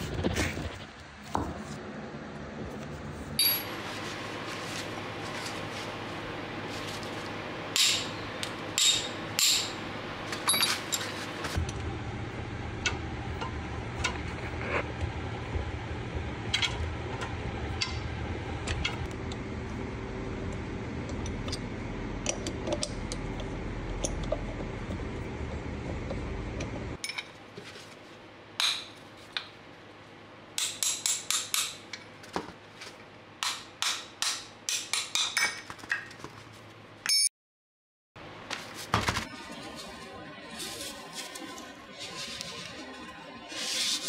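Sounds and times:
steady low hum: 0.0 - 27.0
metal tools clinking: 10.4 - 11.2.

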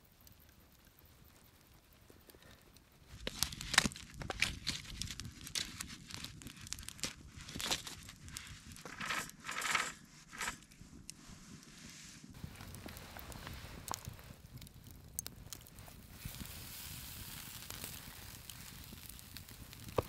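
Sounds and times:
crinkling and scraping handling noises: 3.1 - 14.6.

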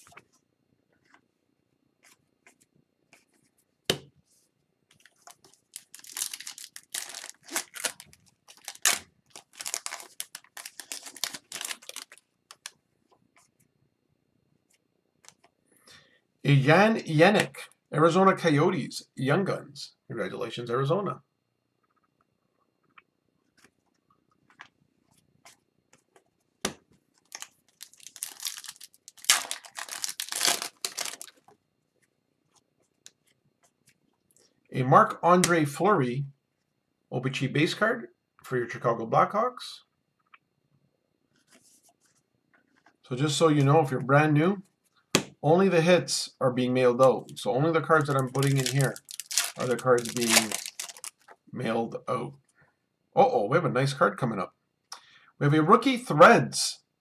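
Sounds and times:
foil wrapper crinkling: 5.0 - 12.8, 27.2 - 31.6, 48.0 - 51.4.

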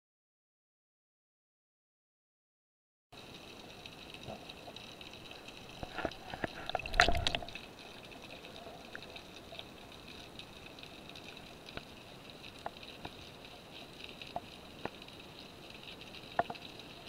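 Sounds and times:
rush of water: 3.2 - 17.0
steady hiss: 3.2 - 17.0
underwater clicks and crackles: 3.2 - 17.0.

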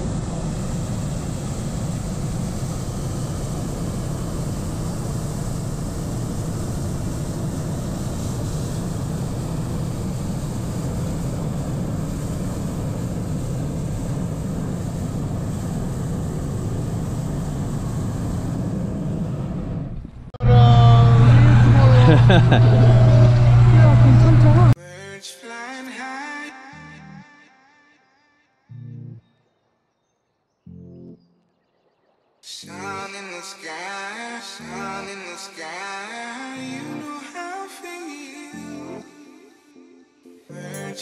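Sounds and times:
propane burner rushing: 0.0 - 24.8.

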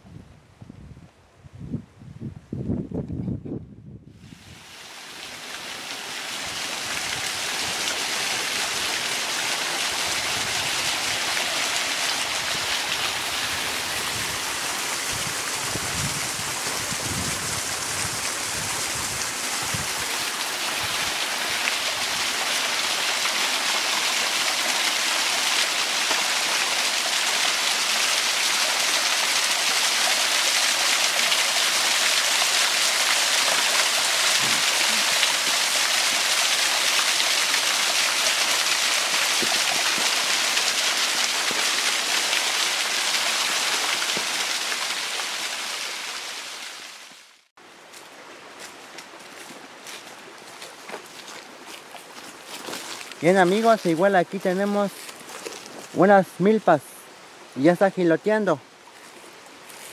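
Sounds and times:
small waterfall rushing and splashing: 4.2 - 59.9.

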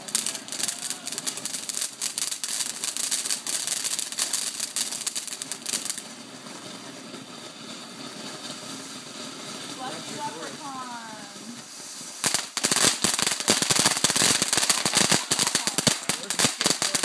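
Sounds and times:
firework crackling and hissing: 0.0 - 17.0.

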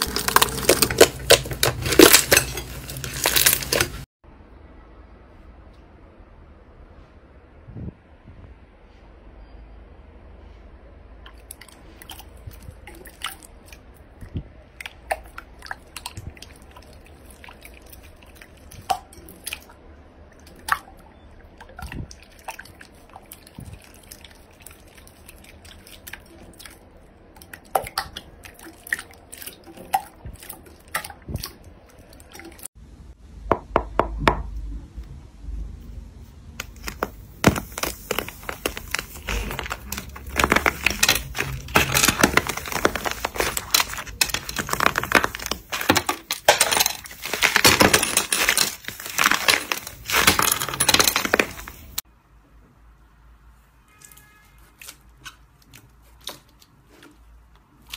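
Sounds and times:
hands squishing wet slime: 11.3 - 32.7, 36.6 - 50.4, 53.9 - 57.9.

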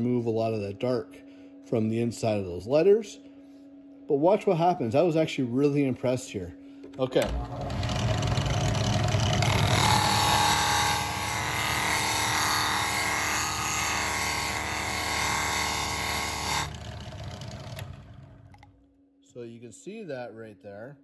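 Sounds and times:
drill press motor hum: 6.8 - 18.9.

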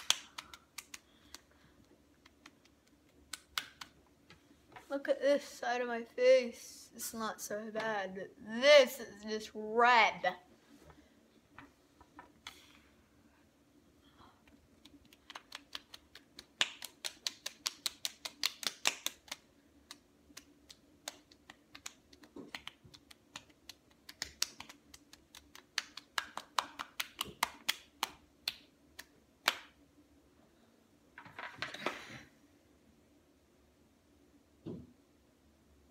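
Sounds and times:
hands slapping cheeks: 0.0 - 1.5, 2.1 - 4.0, 14.7 - 29.8.

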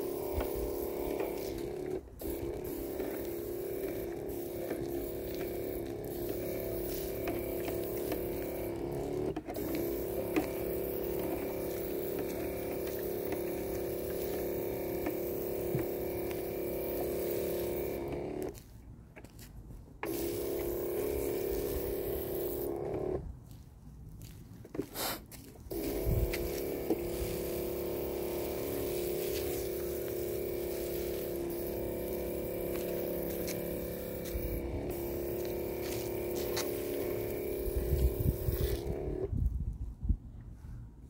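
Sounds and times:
steady hum of held tones: 0.0 - 18.6, 25.7 - 39.7.

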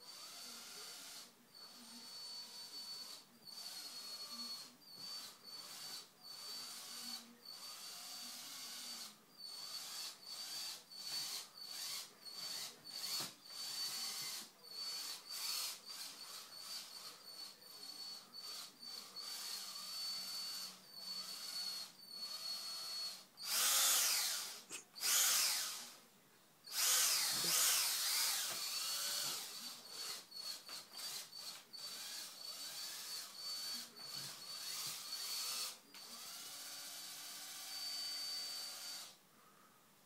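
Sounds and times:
cordless drill motor whirring: 0.0 - 26.0, 26.7 - 39.2.

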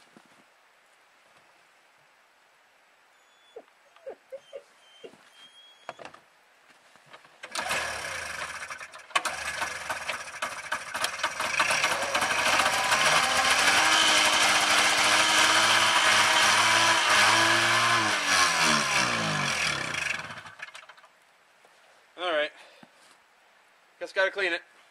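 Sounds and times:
snowmobile engine starting and running: 7.4 - 21.1.

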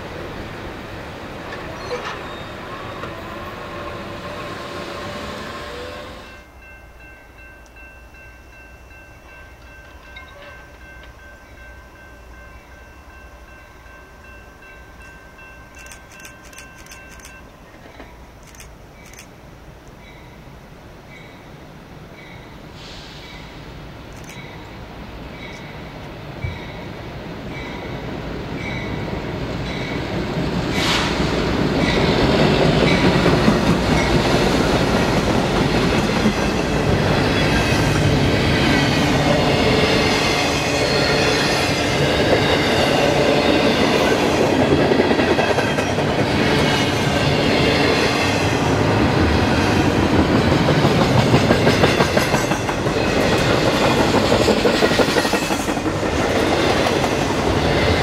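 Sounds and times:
steel wheels rumbling on rail: 0.0 - 6.7, 22.3 - 58.0
diesel locomotive: 0.0 - 58.0.

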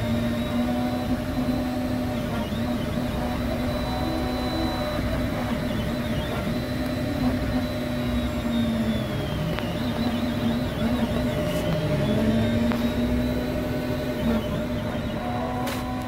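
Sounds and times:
printer machine hum: 0.0 - 16.0
whining motor tones: 0.0 - 16.0.

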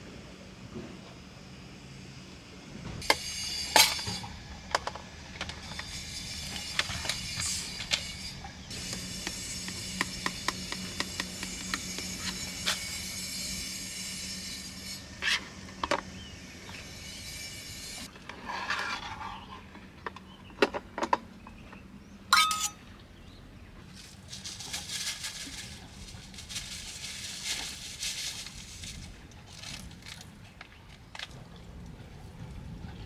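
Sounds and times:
metal spoon scraping steel tray: 22.3 - 22.8
papery packet rustle: 24.0 - 31.3.

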